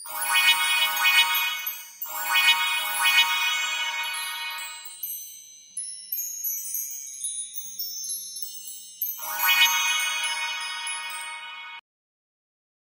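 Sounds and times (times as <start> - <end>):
bright shimmering swell: 0.0 - 5.0, 9.2 - 11.8
high tinkling notes: 0.0 - 11.8
sparkly chime sound effects: 0.0 - 11.8.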